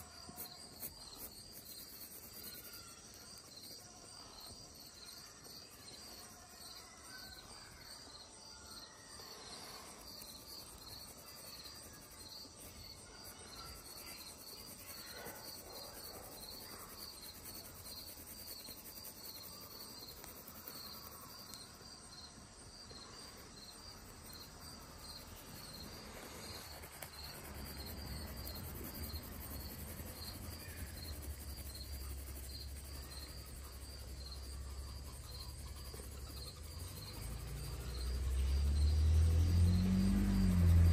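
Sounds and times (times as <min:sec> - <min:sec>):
pencil scratching on paper: 0:00.0 - 0:04.3, 0:09.6 - 0:21.6, 0:24.0 - 0:38.2.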